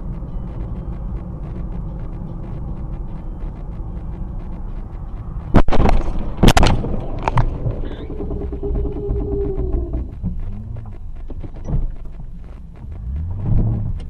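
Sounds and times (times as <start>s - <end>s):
car road noise: 0.0s - 14.0s.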